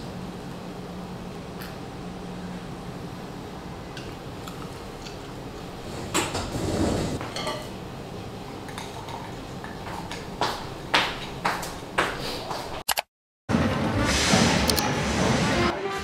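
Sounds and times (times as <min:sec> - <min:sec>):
pot clattering scrape: 0:05.9 - 0:07.6.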